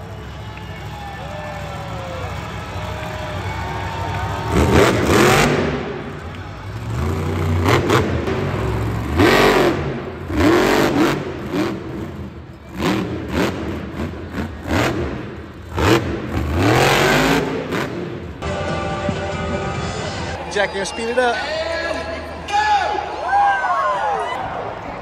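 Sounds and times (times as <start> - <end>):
truck engine revving: 0.0 - 20.4.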